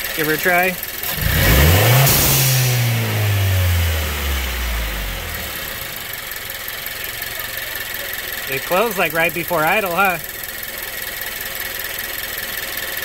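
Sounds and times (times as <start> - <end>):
car engine revving: 1.0 - 10.3.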